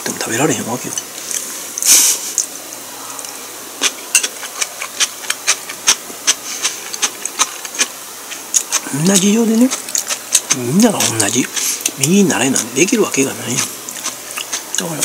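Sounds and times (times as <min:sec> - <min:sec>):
breathy hiss: 0:01.4 - 0:03.4, 0:11.1 - 0:12.0
mouth clicks while chewing: 0:03.8 - 0:08.9, 0:09.7 - 0:12.0, 0:13.9 - 0:14.8.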